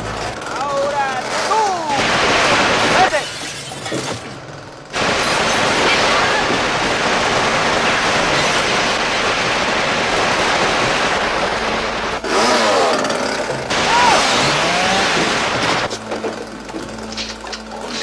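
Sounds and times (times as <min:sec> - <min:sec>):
chainsaw engine running: 0:04.9 - 0:18.0
people yelling: 0:13.7 - 0:15.2.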